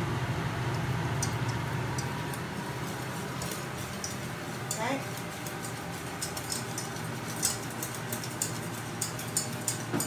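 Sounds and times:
whisk scraping metal saucepan: 2.6s - 10.0s.

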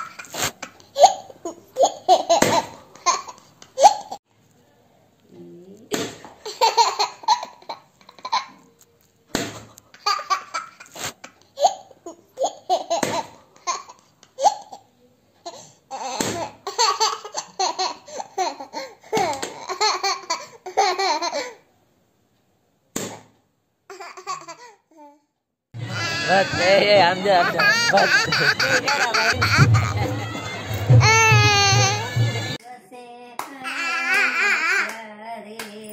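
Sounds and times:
toddler laughing: 0.0s - 4.2s, 25.8s - 32.6s, 33.7s - 35.0s.

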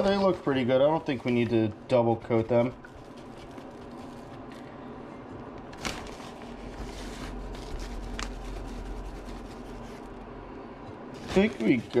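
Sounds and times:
low steady hum: 0.0s - 12.0s
plastic zipper bag crinkling: 5.8s - 9.9s, 11.2s - 12.0s.

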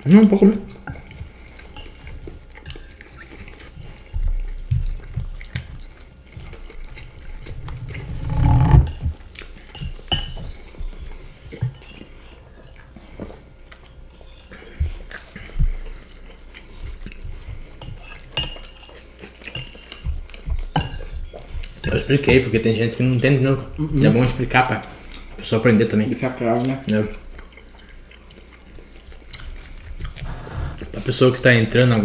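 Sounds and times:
spoons scraping on ceramic plates: 7.3s - 9.1s.

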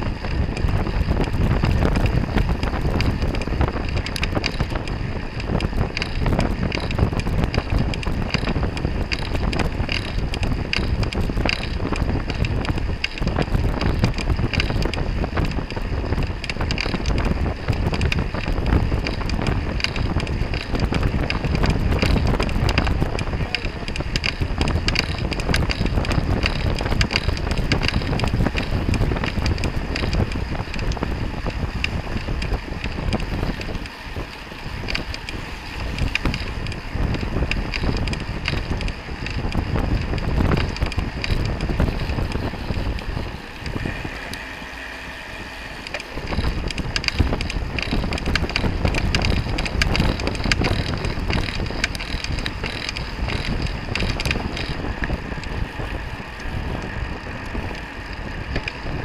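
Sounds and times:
low rumble: 0.0s - 59.0s
wind rushing over microphone: 0.0s - 59.0s.

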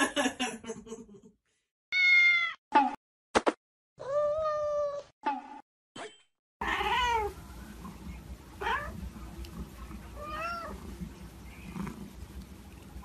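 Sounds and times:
cat meowing: 1.9s - 2.6s, 4.0s - 5.0s, 10.2s - 10.8s
low steady background hum: 6.6s - 13.0s.

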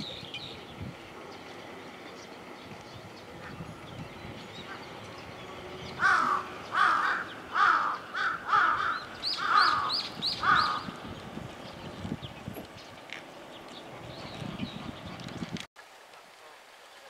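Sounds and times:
crow cawing: 6.0s - 10.9s.

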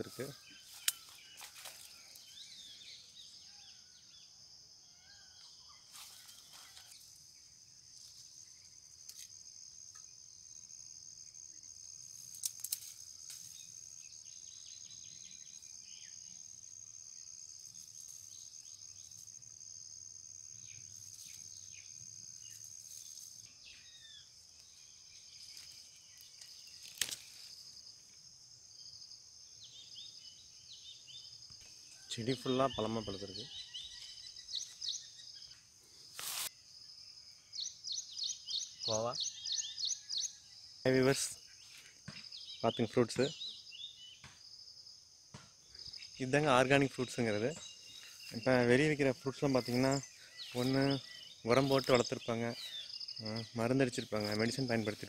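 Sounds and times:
bird chirps: 0.0s - 7.0s, 20.6s - 27.6s, 29.5s - 35.7s, 36.3s - 44.7s, 45.6s - 55.0s
high insect drone: 0.0s - 42.6s, 43.2s - 55.0s.

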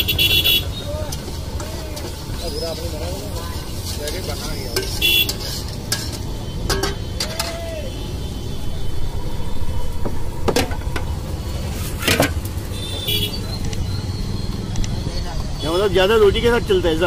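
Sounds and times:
metal spatula scraping iron pan: 1.1s - 7.6s.

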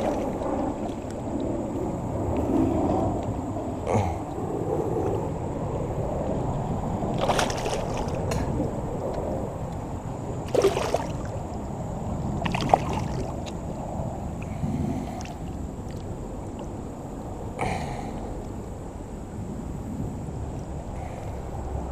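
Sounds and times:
water splashing and sloshing: 0.0s - 5.8s, 6.4s - 17.6s
low rush of water: 0.0s - 21.9s
sharp splashes: 7.1s - 8.4s, 10.4s - 11.5s, 12.4s - 13.5s.

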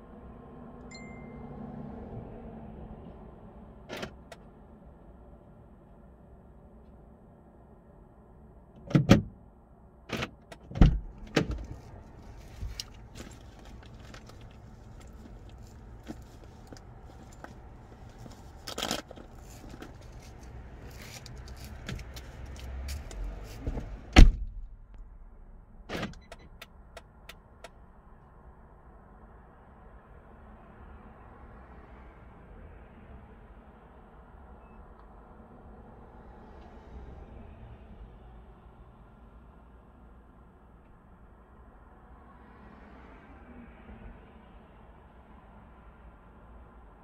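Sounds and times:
loud thud: 24.2s - 25.5s.

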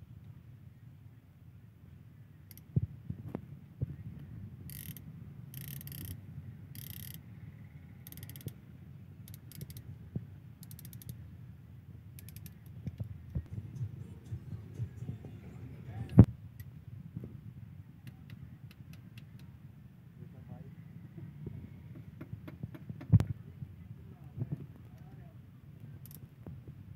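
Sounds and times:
rapid ratchet clicks: 4.7s - 7.2s, 8.0s - 8.6s, 9.2s - 9.8s, 10.6s - 11.2s, 12.2s - 13.0s.

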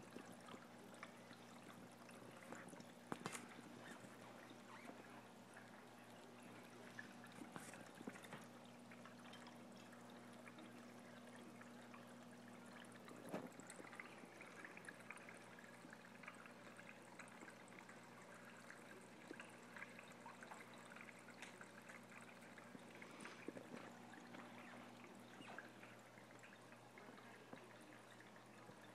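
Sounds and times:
low electrical hum: 0.0s - 28.9s
water trickling in aquarium: 0.0s - 28.9s.

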